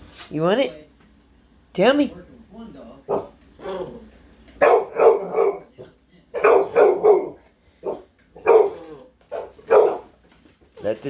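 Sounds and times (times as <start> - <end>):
dog barking: 3.1 - 3.4, 4.6 - 10.2.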